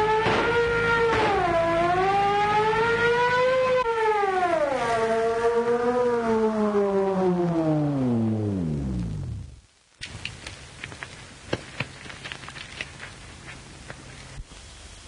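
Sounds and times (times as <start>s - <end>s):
police siren wailing: 0.0s - 9.4s.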